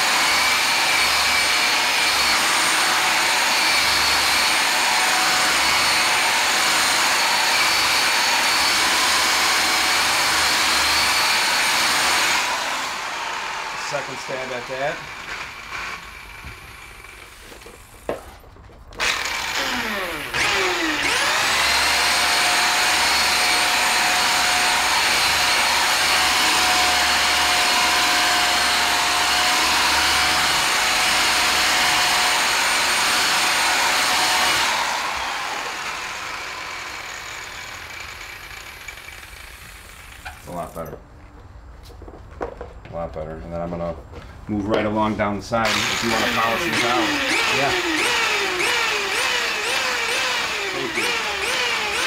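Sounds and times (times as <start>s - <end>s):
rotary buffer whining: 18.9s - 40.8s, 45.6s - 52.0s.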